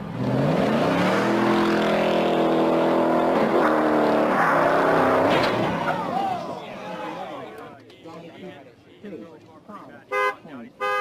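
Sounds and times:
car engine revving hard: 0.0s - 5.8s.

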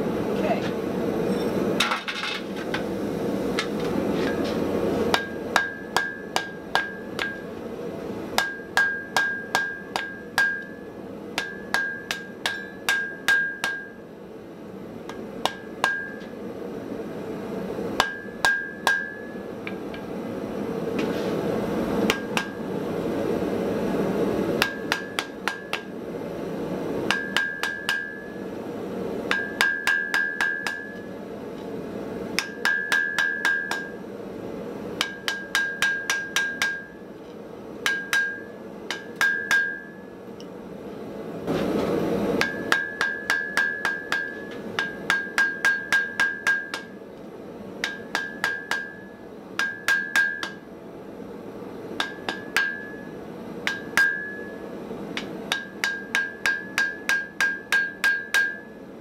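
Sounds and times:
hammer striking metal on anvil: 5.1s - 7.5s, 8.4s - 14.0s, 15.1s - 16.3s, 18.0s - 19.4s, 22.1s - 22.6s, 24.6s - 25.9s, 27.1s - 28.4s, 29.3s - 31.1s, 32.4s - 34.0s, 35.0s - 37.0s, 37.8s - 40.1s, 42.4s - 47.0s, 47.8s - 50.6s, 52.0s - 54.6s, 55.2s - 58.8s.

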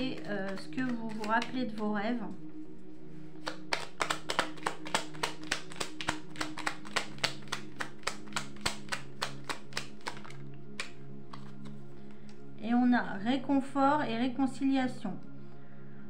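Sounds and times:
cards being shuffled: 0.0s - 1.8s, 3.2s - 12.4s
soft background music: 0.0s - 16.0s.

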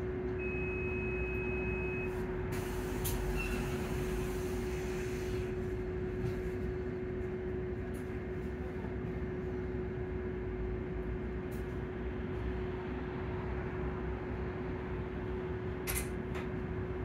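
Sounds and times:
air hissing: 2.6s - 5.5s.

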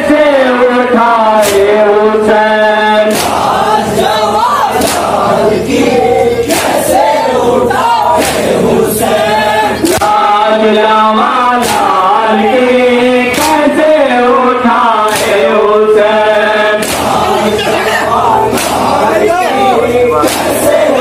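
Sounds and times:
men chanting in unison: 0.0s - 21.0s
sharp slaps: 1.4s - 1.8s, 3.1s - 5.2s, 6.4s - 7.0s, 8.1s - 9.2s, 9.8s - 10.3s, 11.6s - 12.2s, 13.3s - 13.8s, 15.0s - 15.5s, 16.8s - 17.4s, 18.5s - 19.2s, 20.2s - 20.8s.

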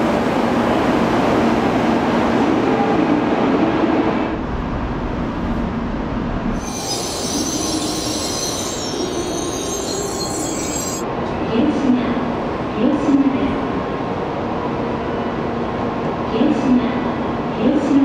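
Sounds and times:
high-pitched squeal and hiss: 6.6s - 11.0s.

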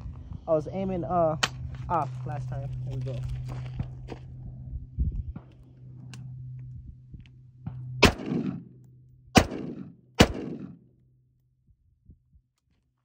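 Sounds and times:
rifle shots with echo: 8.0s - 8.7s, 9.4s - 10.9s.

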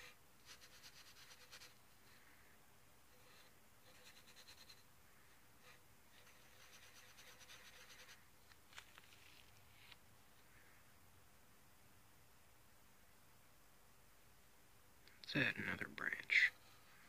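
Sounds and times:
pencil scribbling on paper: 0.0s - 1.8s, 3.1s - 4.8s, 5.6s - 8.2s.

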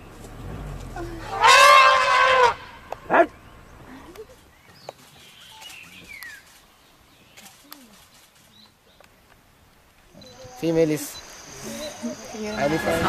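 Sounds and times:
elephant trumpeting: 1.2s - 3.4s
faint bird chirps: 10.2s - 13.0s.

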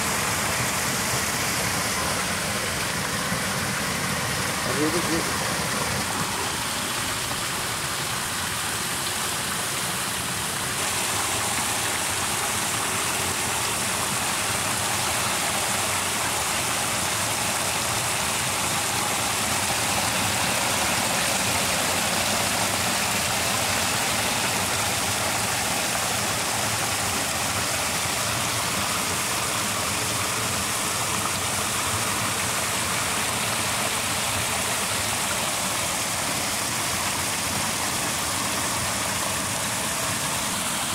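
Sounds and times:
water pouring into pool: 0.0s - 40.9s.

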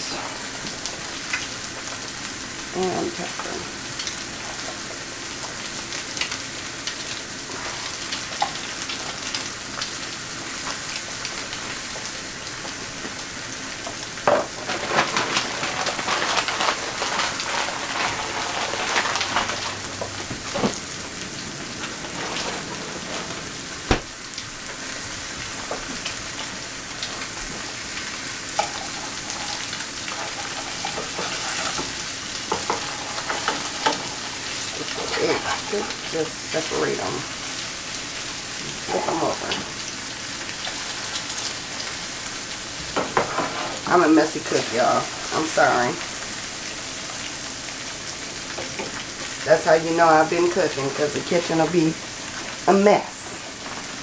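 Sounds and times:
eggs sizzling in oil: 0.0s - 54.0s.

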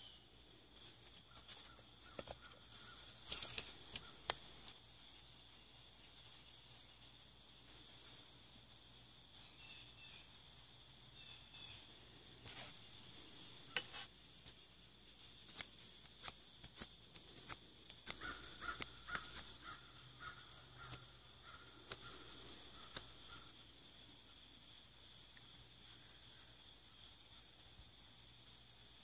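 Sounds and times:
insects droning: 0.0s - 29.0s
knife carving wood: 1.3s - 4.6s, 13.7s - 14.6s, 15.4s - 19.7s.

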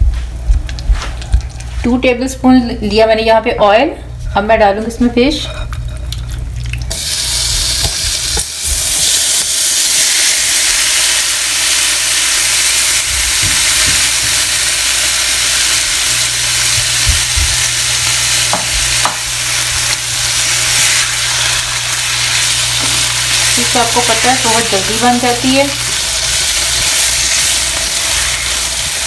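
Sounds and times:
fish sizzling in oil: 6.8s - 29.0s.

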